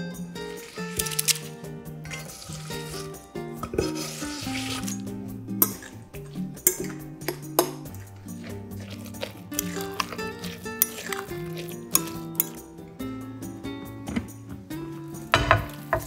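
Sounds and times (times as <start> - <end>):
background music with held notes: 0.0 - 16.0
fork stirring egg mixture: 0.5 - 12.9
metal clinking on glass: 4.7 - 8.1, 9.6 - 12.6.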